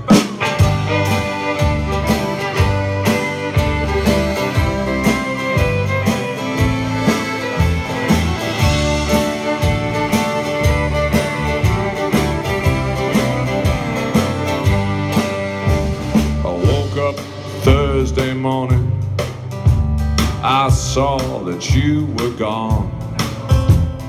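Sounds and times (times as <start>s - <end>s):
fiddle melody: 0.0s - 18.7s
steady beat: 0.0s - 20.6s
banjo: 0.0s - 24.0s
strummed acoustic guitar: 0.0s - 24.0s.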